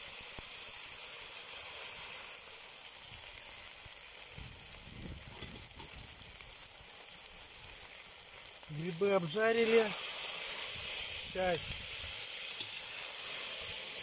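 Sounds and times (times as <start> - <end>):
mushrooms sizzling in oil: 0.0 - 14.0.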